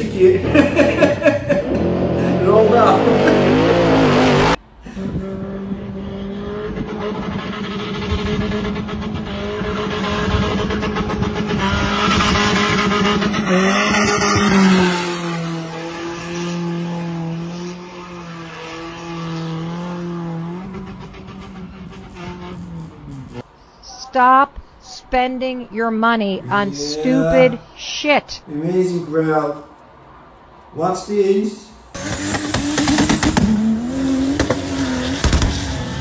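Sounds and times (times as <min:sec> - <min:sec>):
truck engine at high revs: 0:00.0 - 0:23.5, 0:31.9 - 0:36.0.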